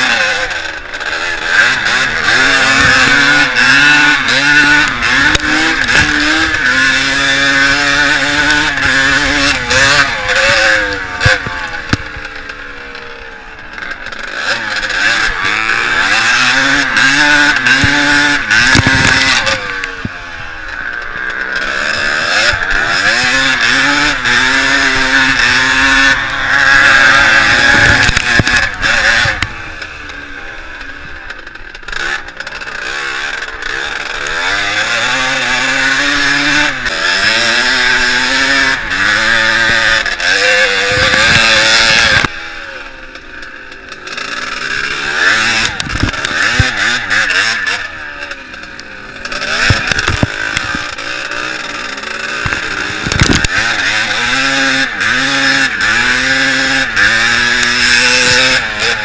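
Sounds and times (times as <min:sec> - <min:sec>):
motocross bike engine revving: 0:00.0 - 0:59.0
ticks of flying dirt: 0:45.2 - 0:59.0.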